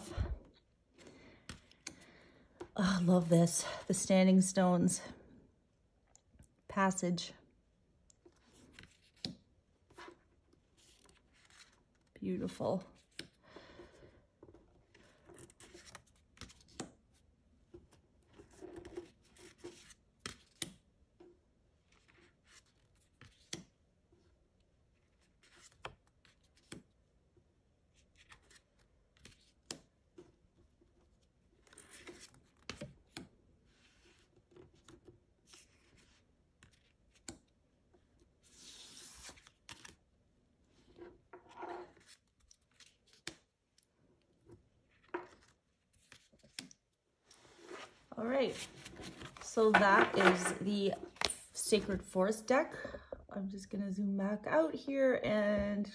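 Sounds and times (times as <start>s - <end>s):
cards tapping on wooden table: 49.7s - 50.6s.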